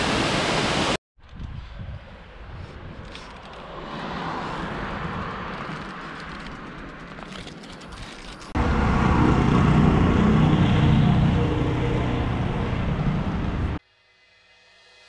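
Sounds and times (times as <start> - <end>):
wind buffeting microphone: 1.2 - 3.4
bicycle riding noise: 1.2 - 13.8
bicycle clicks: 5.1 - 8.6.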